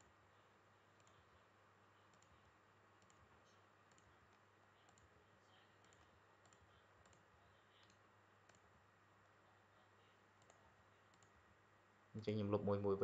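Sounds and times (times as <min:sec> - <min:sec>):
low steady hum: 0:00.0 - 0:13.0
computer mouse clicks: 0:01.0 - 0:01.3, 0:02.1 - 0:05.1, 0:05.8 - 0:08.7, 0:10.4 - 0:11.4.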